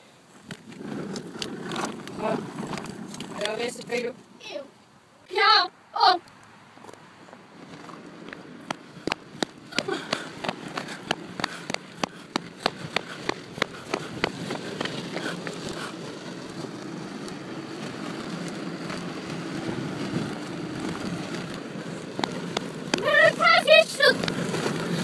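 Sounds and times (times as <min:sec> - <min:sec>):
running footsteps on pavement: 0:06.8 - 0:25.0
steady rushing noise: 0:07.2 - 0:25.0.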